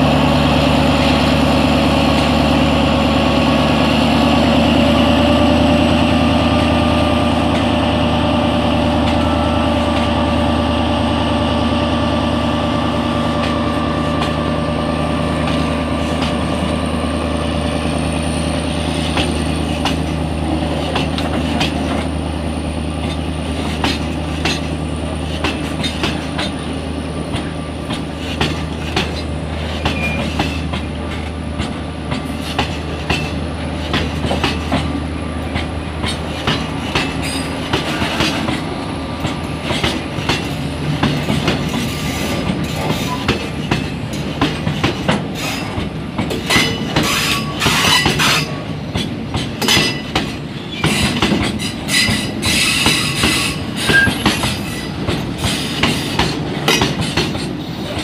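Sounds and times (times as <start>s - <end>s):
train wheels clicking over rail joints: 1.0s - 10.2s, 13.1s - 14.6s, 15.2s - 58.0s
wheels squealing: 50.5s - 56.1s.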